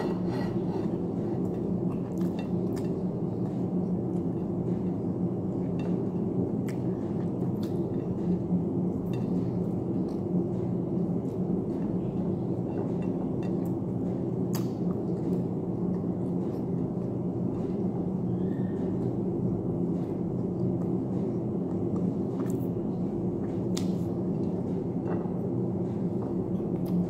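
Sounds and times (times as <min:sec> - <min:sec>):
steady low hum: 0:00.0 - 0:27.0
eating clicks and smacks: 0:05.8 - 0:10.4, 0:12.8 - 0:17.6, 0:20.0 - 0:27.0.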